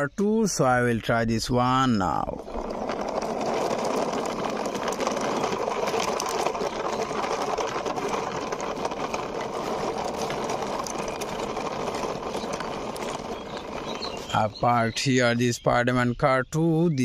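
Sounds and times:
toy car rattling on concrete: 1.8s - 15.1s.

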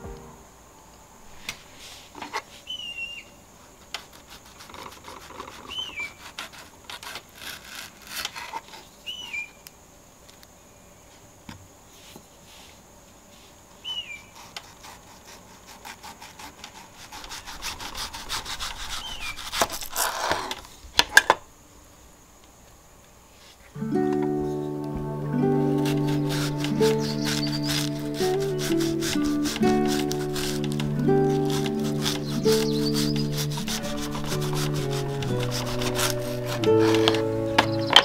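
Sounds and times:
knife cutting on wooden board: 25.7s - 38.0s.

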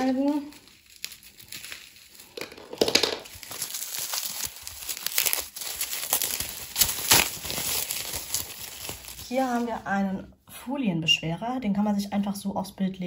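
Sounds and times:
plastic wrapping crinkling: 0.0s - 9.9s.

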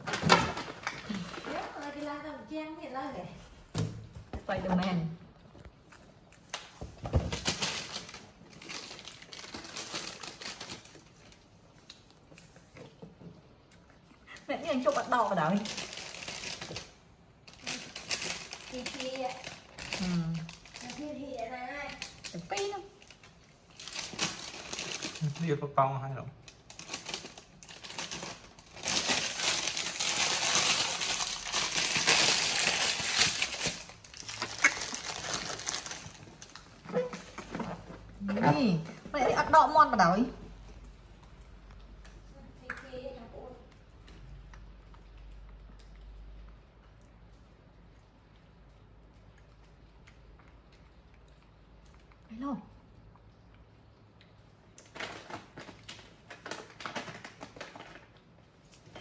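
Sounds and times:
crackly crunching of ice lolly: 26.6s - 37.7s
monkey chewing ice pop: 43.6s - 58.7s.

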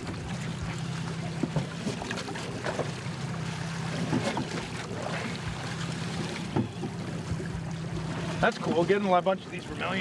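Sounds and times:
outboard motor idling: 0.0s - 10.0s
water noise: 0.0s - 10.0s
wind: 0.0s - 10.0s.

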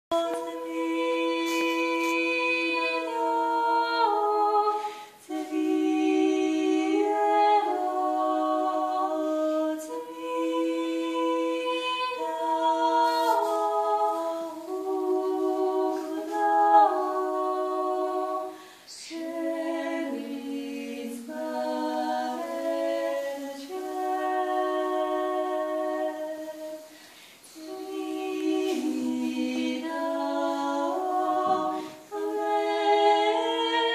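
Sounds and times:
unaccompanied group chant singing: 0.1s - 33.9s.

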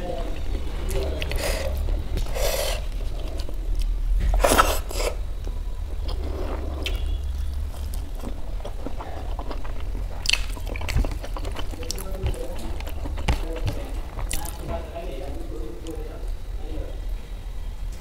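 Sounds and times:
chewing food: 0.2s - 16.1s
fingers mixing rice on plate: 10.3s - 14.9s.

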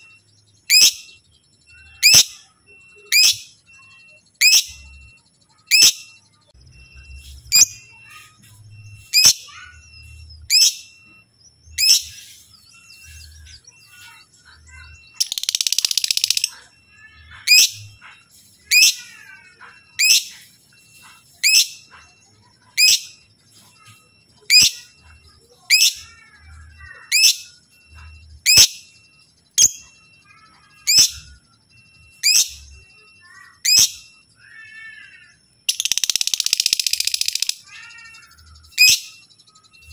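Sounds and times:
lovebird chattering: 0.6s - 1.1s, 11.8s - 27.6s, 28.4s - 28.9s, 32.2s - 39.2s.

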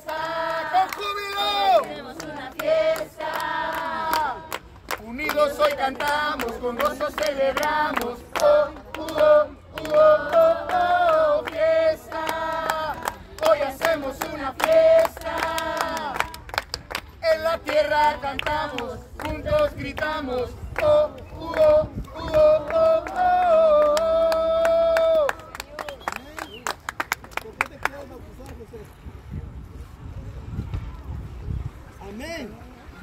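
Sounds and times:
group of people singing: 0.0s - 16.4s, 17.2s - 24.1s.

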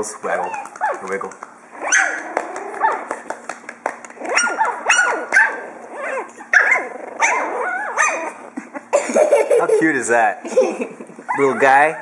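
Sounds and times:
puppies play-barking and yipping: 0.2s - 3.3s, 4.1s - 8.8s, 11.3s - 12.0s.

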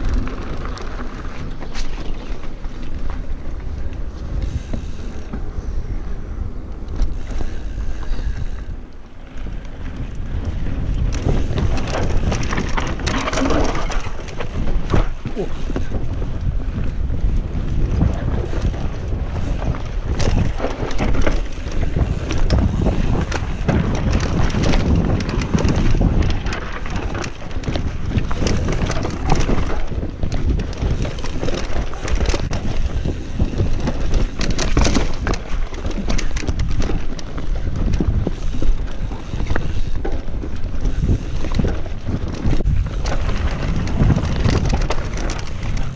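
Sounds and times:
mountain bike rattling downhill: 0.0s - 45.9s
tyres crunching over ground: 0.0s - 45.9s
wind buffeting microphone: 0.0s - 45.9s
chain and frame clatter: 11.1s - 16.0s.

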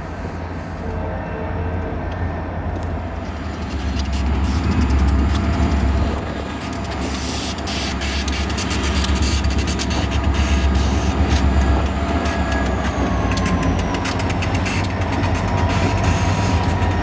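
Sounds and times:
locomotive engine rumble: 0.0s - 17.0s
sharp irregular clicks: 3.6s - 17.0s.

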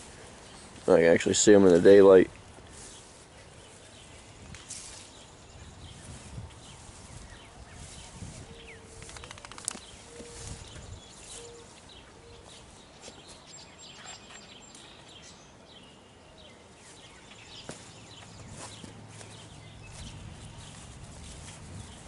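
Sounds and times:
low hooting bird calls: 6.9s - 12.8s
clicks and rustles: 8.9s - 10.1s.

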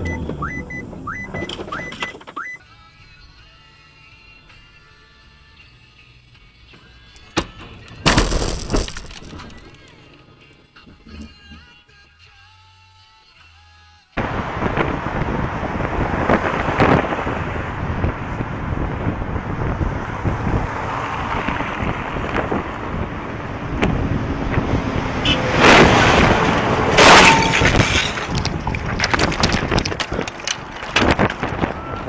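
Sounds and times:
bikes clattering to the ground: 7.2s - 10.0s, 27.0s - 31.8s
loud bicycle crash impacts: 8.0s - 9.7s, 27.0s - 31.4s
wind rushing over microphone: 14.2s - 32.0s.

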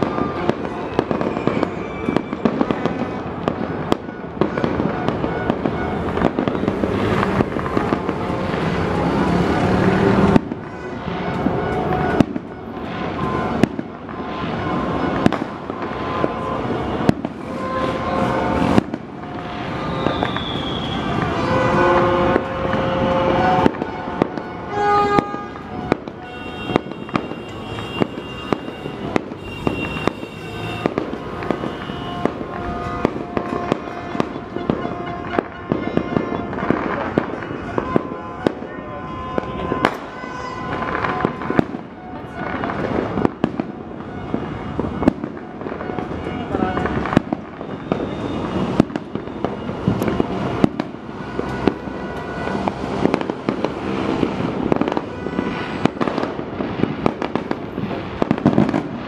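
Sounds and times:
firecrackers crackling: 0.0s - 59.0s
fireworks bangs: 0.0s - 59.0s
fireworks whistling: 0.0s - 59.0s.

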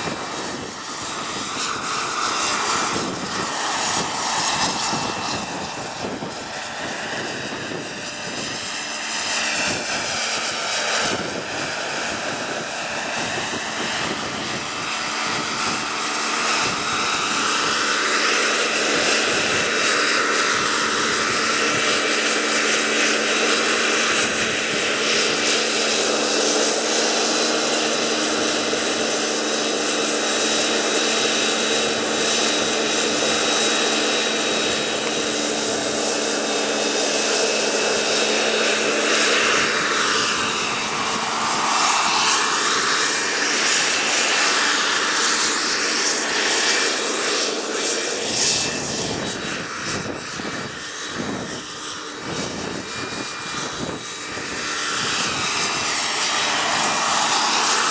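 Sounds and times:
helicopter rotors whirring: 0.0s - 57.9s
model helicopter turbine whining: 0.0s - 57.9s.

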